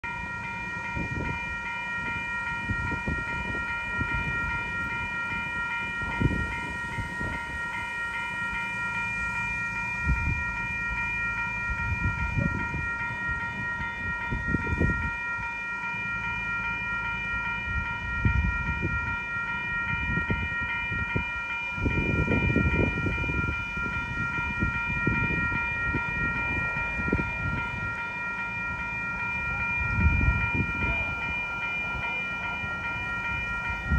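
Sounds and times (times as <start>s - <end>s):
level crossing bell ringing: 0.0s - 33.9s
wind rumbling on microphone: 0.9s - 1.6s, 2.6s - 7.7s, 10.0s - 10.5s, 11.7s - 15.2s, 17.6s - 28.0s, 28.6s - 32.0s, 32.6s - 33.9s.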